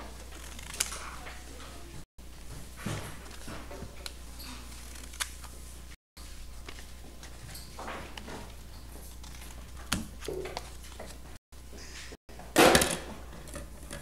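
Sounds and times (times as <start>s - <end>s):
paper rustling: 0.0s - 1.7s.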